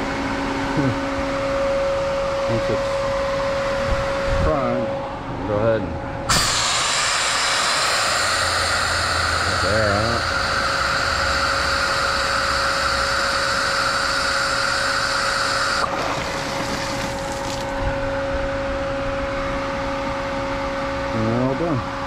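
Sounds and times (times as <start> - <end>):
pool pump humming: 0.0 - 22.0
air hissing from valve: 6.3 - 15.9.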